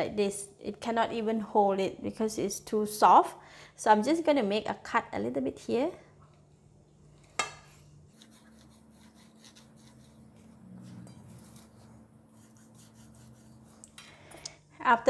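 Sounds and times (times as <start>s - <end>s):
knife scratching fish skin on tray: 8.1s - 14.0s.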